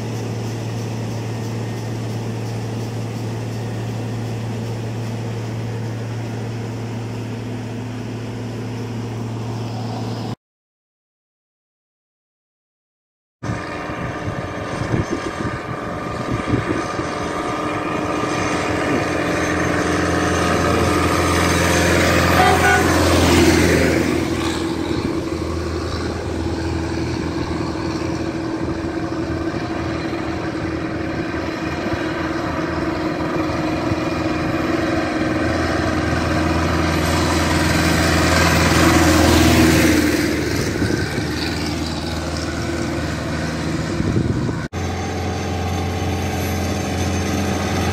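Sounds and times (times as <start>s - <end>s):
tractors driving past: 0.0s - 10.4s, 13.5s - 47.9s.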